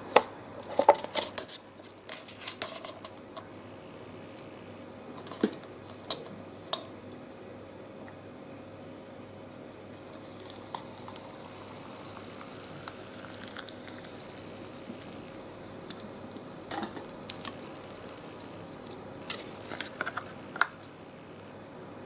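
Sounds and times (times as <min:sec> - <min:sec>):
hot water pouring into cup: 0:09.9 - 0:20.4
noodles fizzing and crackling: 0:10.0 - 0:20.0.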